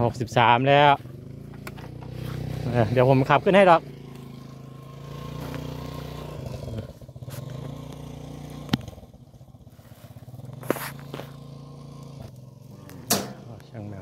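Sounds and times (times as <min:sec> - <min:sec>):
motorcycle engine running: 0:00.0 - 0:14.0
faint scuffing: 0:01.7 - 0:02.6.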